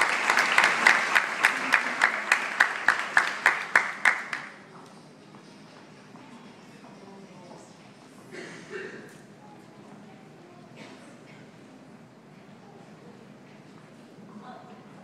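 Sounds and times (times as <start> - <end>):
audience applauding: 0.0 - 4.6
loud rhythmic claps: 0.0 - 4.6
low room noise: 0.0 - 15.0.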